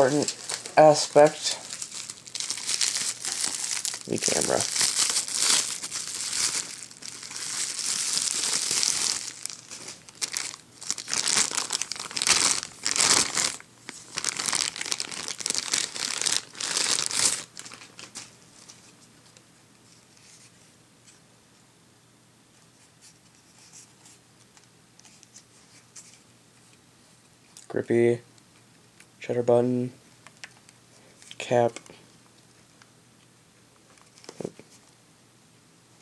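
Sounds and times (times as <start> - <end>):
bubble wrap and plastic crinkling: 0.0 - 19.0.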